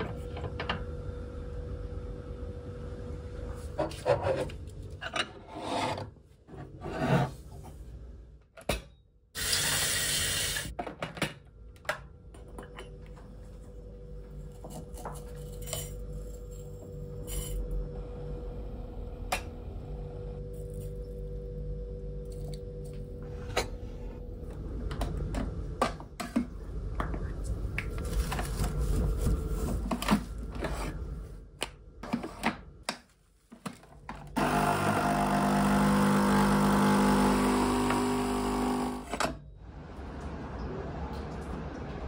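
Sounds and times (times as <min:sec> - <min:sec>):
coffee machine pump buzzing: 0:34.4 - 0:39.2.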